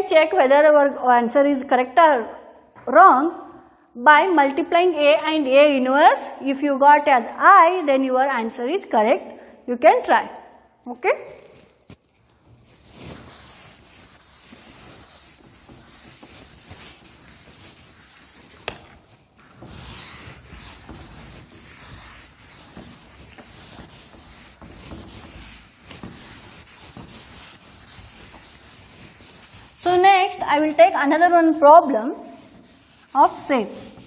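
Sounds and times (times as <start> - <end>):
duster rubbing blackboard: 12.0 - 34.0.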